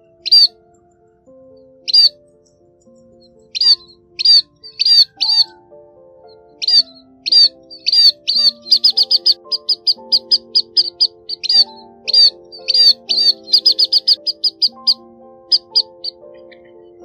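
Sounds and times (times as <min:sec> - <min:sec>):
bird short high calls: 0:00.0 - 0:00.5, 0:01.9 - 0:02.2, 0:03.5 - 0:05.6, 0:06.6 - 0:16.8
music with slow held notes: 0:00.0 - 0:17.0.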